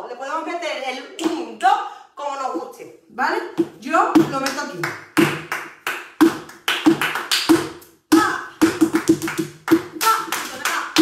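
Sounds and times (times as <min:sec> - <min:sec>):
flamenco shoes striking wooden floor: 0:03.6 - 0:05.6, 0:06.2 - 0:10.7
hand clapping: 0:04.3 - 0:11.0.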